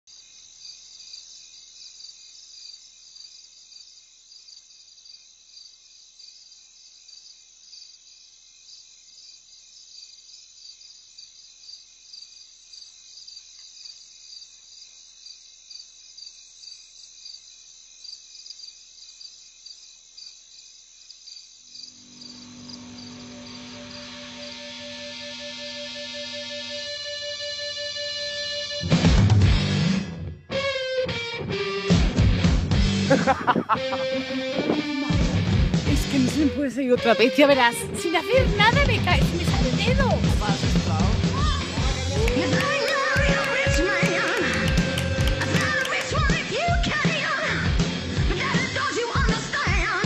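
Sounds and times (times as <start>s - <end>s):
crickets chirping: 0.1s - 28.9s, 33.1s - 44.9s
music with sustained low notes: 22.0s - 42.7s.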